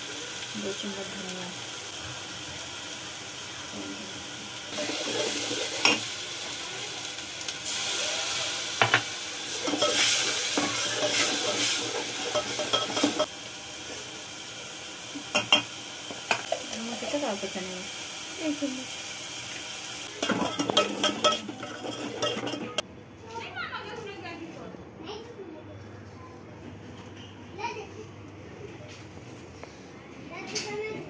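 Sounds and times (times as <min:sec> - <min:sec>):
spices sizzling in a pan: 0:00.0 - 0:22.8
spoon scraping a pan: 0:04.7 - 0:06.1, 0:08.8 - 0:13.3, 0:20.1 - 0:22.8.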